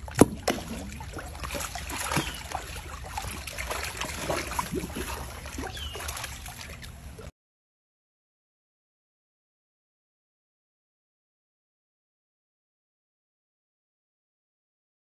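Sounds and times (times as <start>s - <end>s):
water sloshing and splashing: 0.0s - 7.3s.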